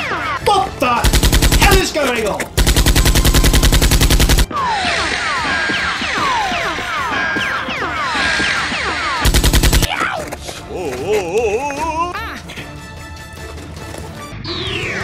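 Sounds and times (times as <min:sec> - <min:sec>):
automatic gunfire bursts: 0:01.0 - 0:04.5, 0:09.2 - 0:09.9
music with falling swoops: 0:12.7 - 0:15.0.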